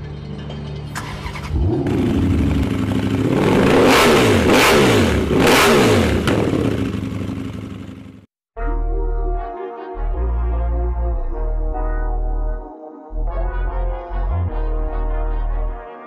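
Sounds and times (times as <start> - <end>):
motorcycle engine revving: 1.0 - 8.3.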